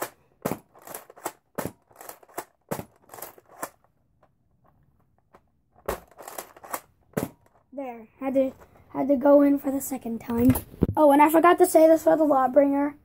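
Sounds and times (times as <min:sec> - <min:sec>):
toy blaster mechanism clicking: 0:00.7 - 0:03.8, 0:06.0 - 0:06.9.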